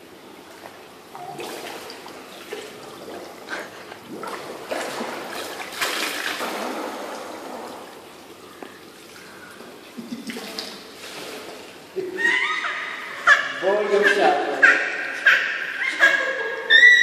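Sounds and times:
water splashing from swimming: 0:00.6 - 0:13.5.

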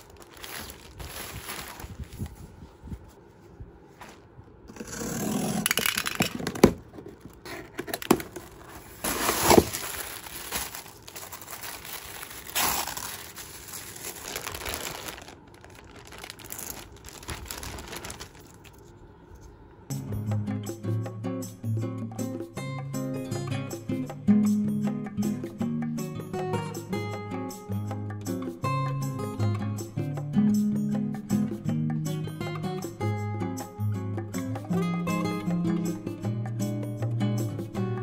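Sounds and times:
plastic packaging crinkling: 0:00.0 - 0:02.4, 0:05.6 - 0:18.9.

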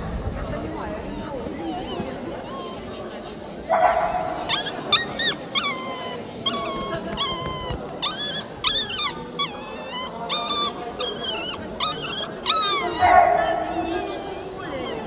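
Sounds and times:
dog whining: 0:04.3 - 0:15.0.

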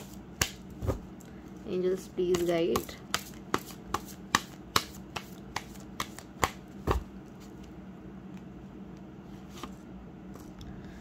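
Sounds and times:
cards tapping while shuffled: 0:02.2 - 0:07.1.

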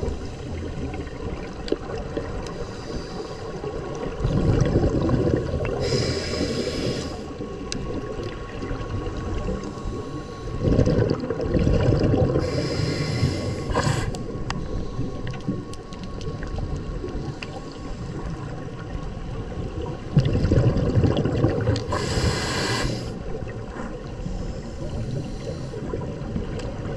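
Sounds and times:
underwater water rumble: 0:00.0 - 0:26.9
high hissing bursts: 0:21.9 - 0:23.1.

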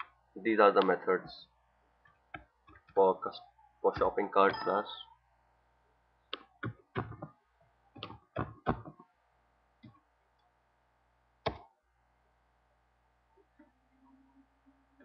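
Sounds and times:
keyboard and mouse clicks: 0:08.0 - 0:09.1, 0:11.4 - 0:11.7.

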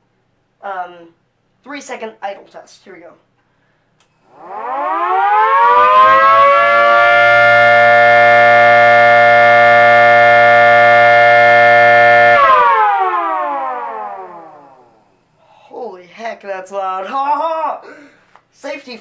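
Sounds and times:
siren wailing: 0:04.2 - 0:15.0.

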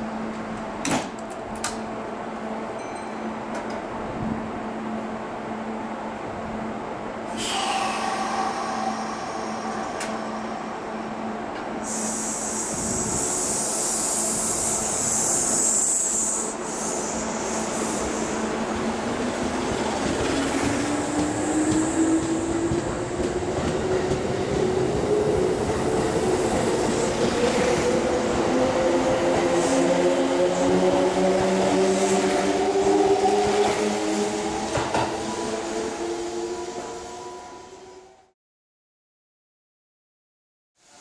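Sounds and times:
air hiss: 0:07.3 - 0:10.9, 0:11.7 - 0:18.5.

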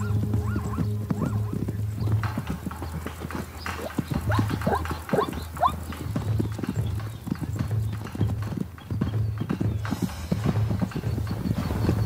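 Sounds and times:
zebra calls: 0:00.0 - 0:06.0
hooves pounding on dry ground: 0:00.0 - 0:12.0.

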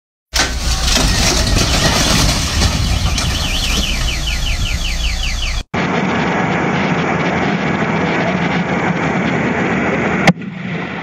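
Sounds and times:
truck engine running: 0:00.3 - 0:05.7
high warbling siren tone: 0:01.2 - 0:07.4.

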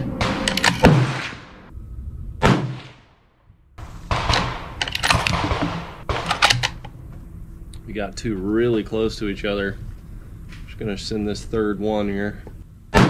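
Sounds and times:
rifle bolt clicking and sliding: 0:00.4 - 0:00.9, 0:04.3 - 0:07.0.

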